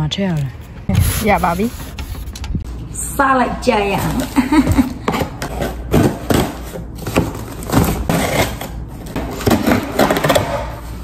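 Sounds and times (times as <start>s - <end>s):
cardboard flaps scraping: 0.9s - 2.5s.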